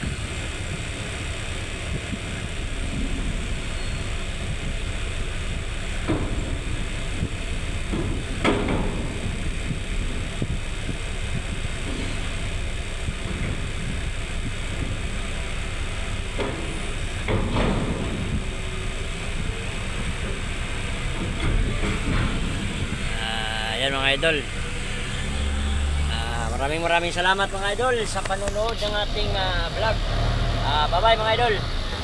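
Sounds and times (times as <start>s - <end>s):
diesel engines idling: 0.0s - 32.0s
metal container clanks and bangs: 7.8s - 9.8s, 16.3s - 18.5s.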